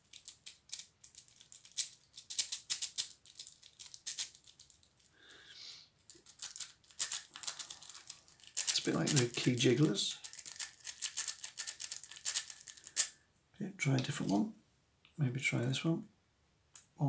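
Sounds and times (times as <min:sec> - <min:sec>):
lock pick rattling in lock: 0:00.0 - 0:05.1, 0:06.1 - 0:13.1.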